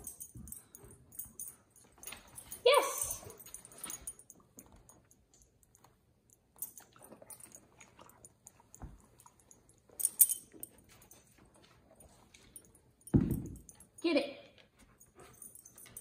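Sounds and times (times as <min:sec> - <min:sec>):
dog collar tags jingling: 0:00.0 - 0:16.0.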